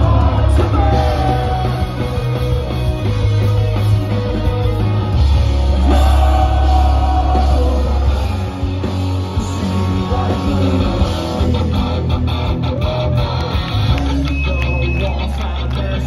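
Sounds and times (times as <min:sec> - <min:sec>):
rock band playing live: 0:00.0 - 0:16.0
person singing: 0:05.8 - 0:11.8.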